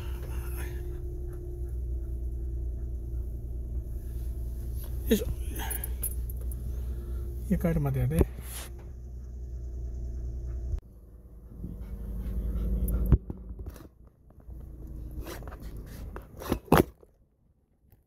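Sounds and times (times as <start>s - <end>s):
dog panting: 0.0s - 6.7s, 9.1s - 13.8s
low hum: 0.0s - 16.4s.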